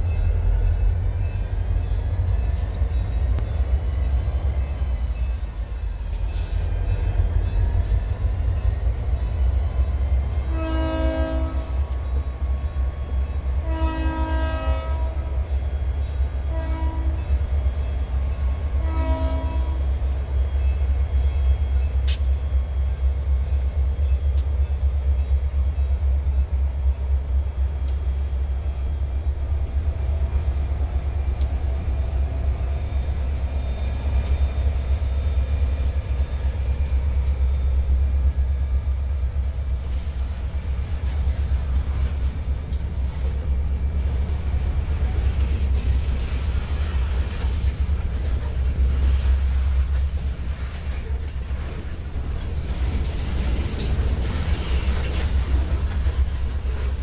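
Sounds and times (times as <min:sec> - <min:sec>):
locomotive air horn blasts: 0:10.4 - 0:12.0, 0:13.6 - 0:15.3, 0:16.4 - 0:17.2, 0:18.8 - 0:19.8.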